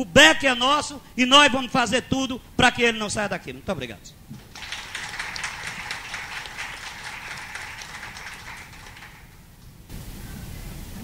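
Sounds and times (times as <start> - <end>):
audience applauding: 4.4 - 9.5.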